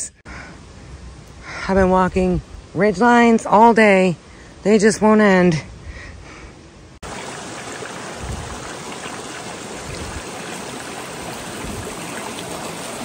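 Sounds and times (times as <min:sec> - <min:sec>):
creek running over rocks: 0:07.0 - 0:13.0.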